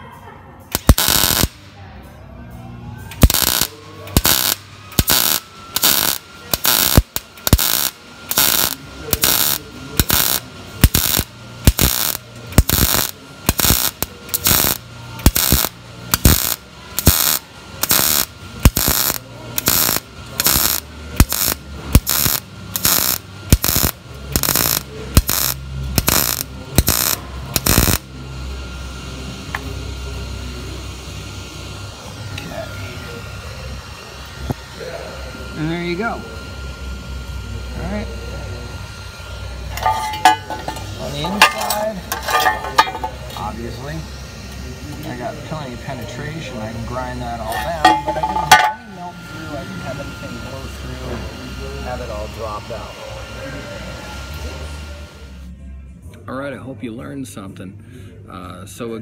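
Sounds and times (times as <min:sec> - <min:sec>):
welding arc crackling: 0:00.7 - 0:01.8, 0:03.1 - 0:34.8, 0:35.6 - 0:48.8.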